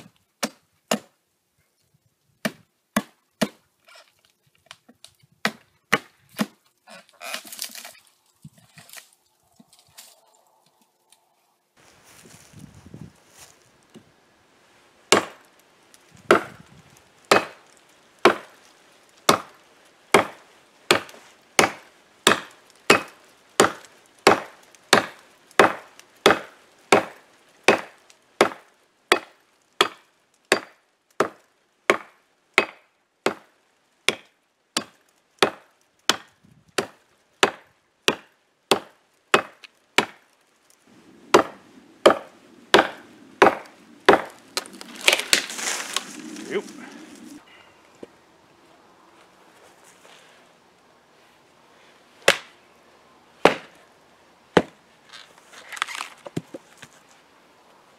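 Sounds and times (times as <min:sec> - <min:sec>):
blade chopping into tree limb: 0:41.3 - 0:46.3, 0:52.2 - 0:52.5, 0:53.4 - 0:53.8.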